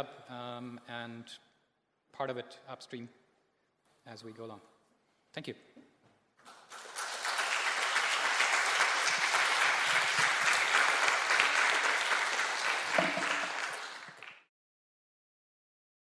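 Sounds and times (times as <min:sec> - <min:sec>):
audience applauding: 0:06.4 - 0:14.5.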